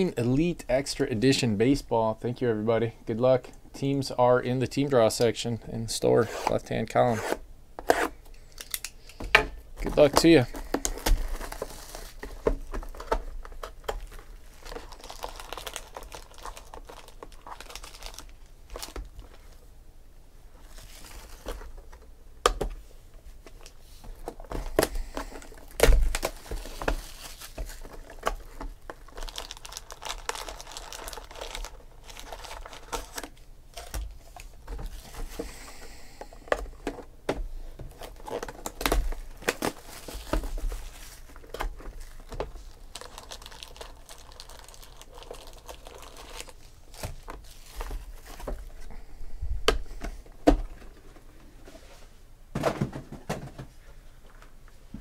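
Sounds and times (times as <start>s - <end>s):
plastic wrap crinkling: 9.8s - 19.6s, 23.5s - 35.7s, 37.9s - 49.0s.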